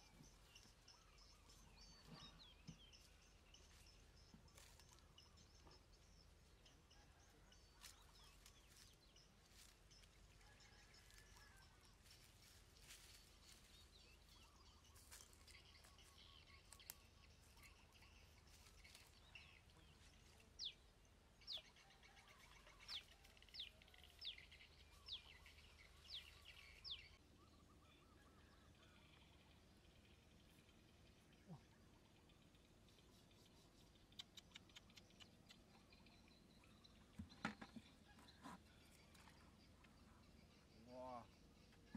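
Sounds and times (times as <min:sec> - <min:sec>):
faint outdoor ambience: 0:00.0 - 0:41.9.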